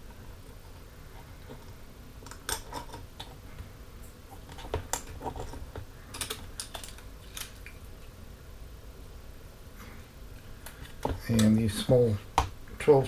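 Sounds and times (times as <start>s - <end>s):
plastic parts clicking and tapping: 4.4s - 7.7s.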